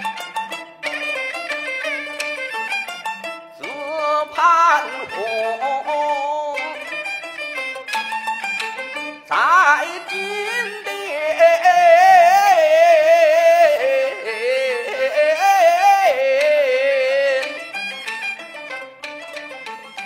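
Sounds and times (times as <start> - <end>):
bowed fiddle playing: 0.0 - 20.0
small ensemble accompanying: 0.0 - 20.0
man singing opera: 3.6 - 7.0, 9.3 - 17.8.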